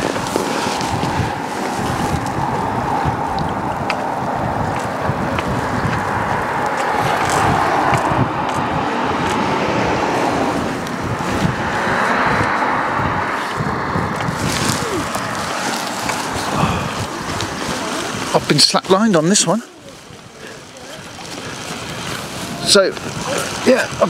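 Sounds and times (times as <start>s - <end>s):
gusty wind on microphone: 0.0s - 24.0s.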